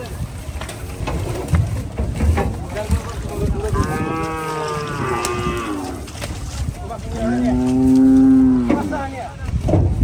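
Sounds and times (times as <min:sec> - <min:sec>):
cattle mooing: 0:03.6 - 0:06.2, 0:07.1 - 0:09.0.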